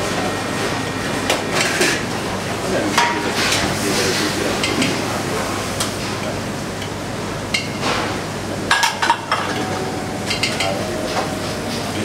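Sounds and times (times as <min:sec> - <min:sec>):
steady background hum: 0:00.0 - 0:12.0
pans and utensils clinking: 0:07.5 - 0:12.0.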